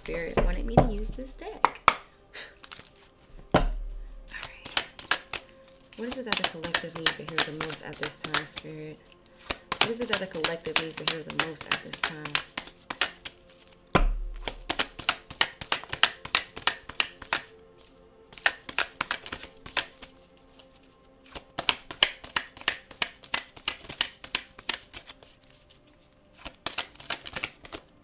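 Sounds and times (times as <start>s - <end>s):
cards being shuffled: 0.0s - 28.0s
low thump: 3.5s - 4.1s, 14.0s - 14.4s.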